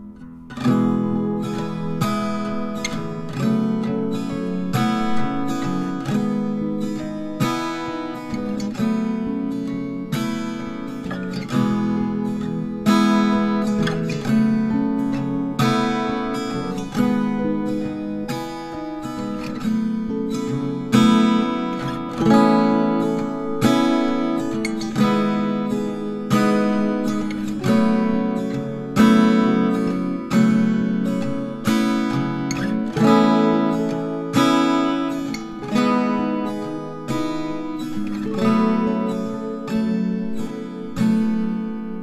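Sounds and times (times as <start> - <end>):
strummed acoustic guitar: 0.0 - 42.0.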